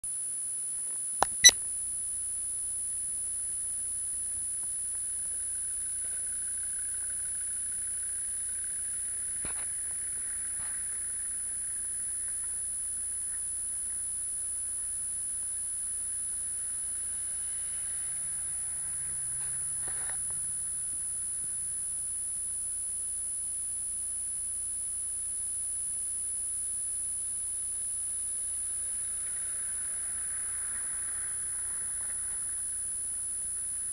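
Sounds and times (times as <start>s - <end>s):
sharp clicks: 1.2s - 1.6s.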